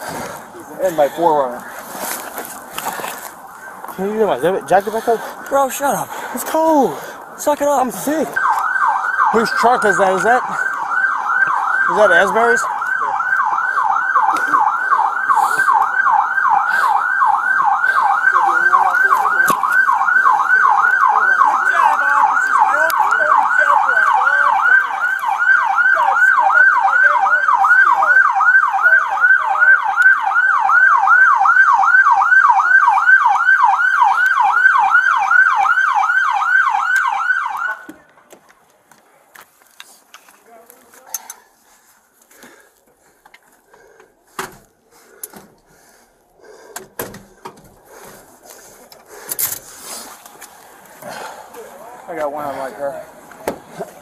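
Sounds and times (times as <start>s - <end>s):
police siren yelp: 3.4s - 38.1s.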